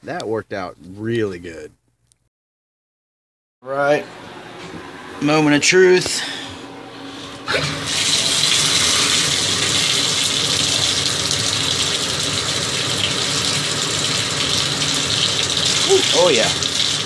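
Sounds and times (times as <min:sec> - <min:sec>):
bathtub faucet turning on: 0:07.4 - 0:17.0
water gushing from tub spout: 0:07.5 - 0:17.0.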